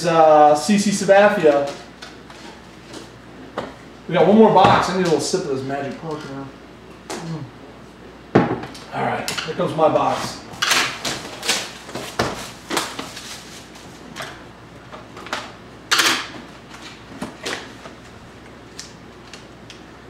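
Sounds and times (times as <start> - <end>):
shrink-wrap crinkling: 10.6 - 14.2.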